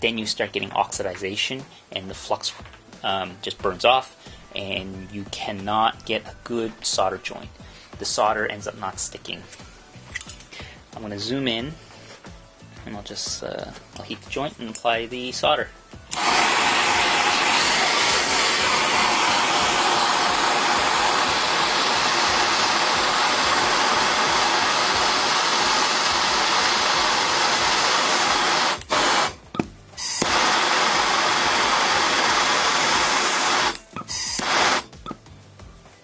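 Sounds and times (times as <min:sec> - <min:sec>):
propane torch hissing: 0:16.0 - 0:35.0.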